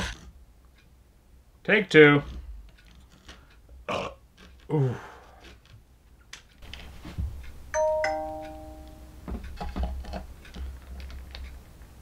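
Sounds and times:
two-note doorbell chime: 7.8 - 9.3.

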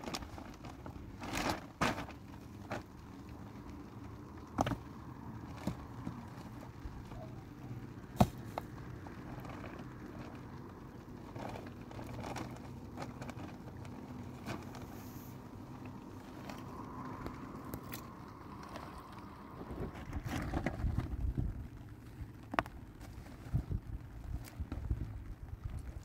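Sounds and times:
plastic sheeting rustling: 0.0 - 4.1, 4.8 - 26.0.

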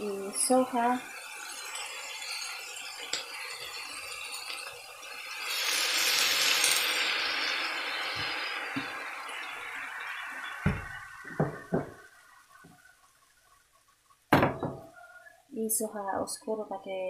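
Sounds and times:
vegetables sizzling in a wok: 0.0 - 13.6.

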